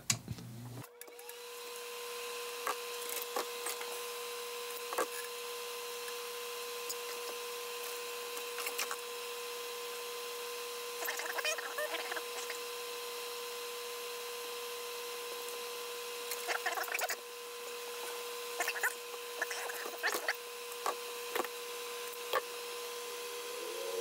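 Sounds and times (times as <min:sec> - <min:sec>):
electric fan humming: 0:22.6 - 0:24.0.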